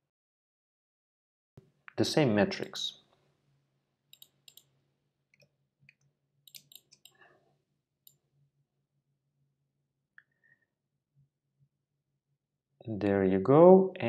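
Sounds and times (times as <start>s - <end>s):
computer mouse clicks: 4.1s - 4.7s, 5.4s - 7.2s.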